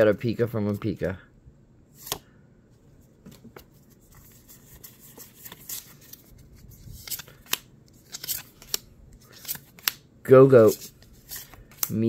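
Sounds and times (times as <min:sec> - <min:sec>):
cards clicking: 0:07.0 - 0:10.0, 0:11.3 - 0:12.0.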